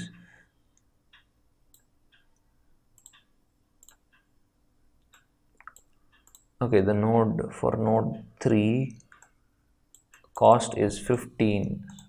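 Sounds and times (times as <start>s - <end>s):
computer mouse clicks: 0.7s - 4.3s, 5.0s - 6.6s, 8.9s - 10.5s.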